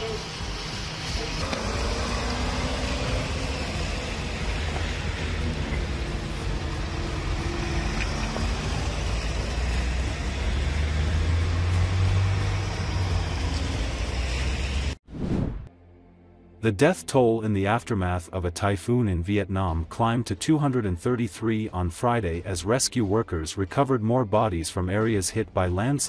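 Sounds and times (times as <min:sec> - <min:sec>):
street noise: 0:00.0 - 0:15.0
van engine driving past: 0:00.0 - 0:15.0.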